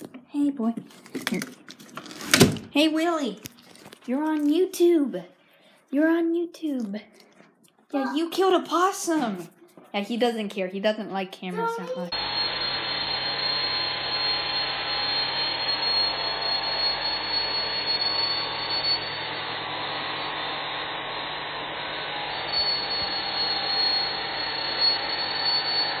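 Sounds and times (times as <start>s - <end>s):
power grinder grinding metal: 11.7s - 26.0s.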